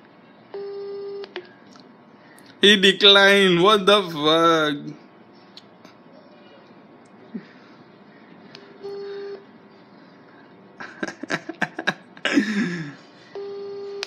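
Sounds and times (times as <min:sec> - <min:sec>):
phone ringback beep: 0:00.6 - 0:01.3, 0:08.8 - 0:09.4, 0:13.4 - 0:14.0.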